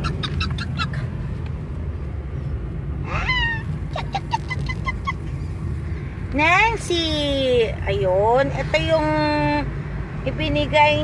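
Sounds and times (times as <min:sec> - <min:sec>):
dog yipping: 0:00.0 - 0:01.0, 0:03.1 - 0:05.5
car engine and road rumble: 0:00.0 - 0:11.0.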